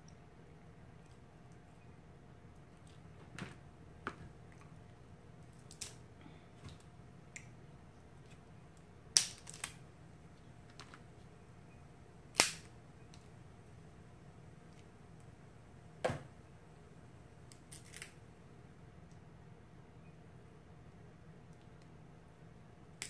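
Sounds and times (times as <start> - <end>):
crab shells cracking: 5.6 - 6.0, 9.2 - 9.8, 17.5 - 18.2.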